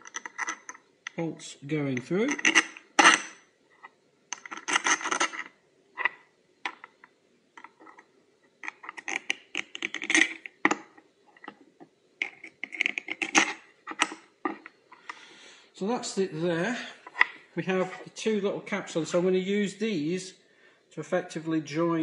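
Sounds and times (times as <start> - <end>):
small bolts clinking on metal: 0.0 - 1.2, 2.0 - 3.4.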